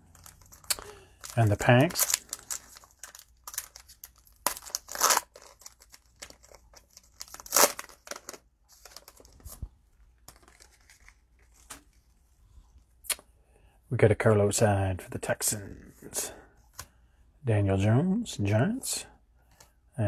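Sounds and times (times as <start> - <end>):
cellophane wrapper crinkling and tearing: 0.0 - 11.7.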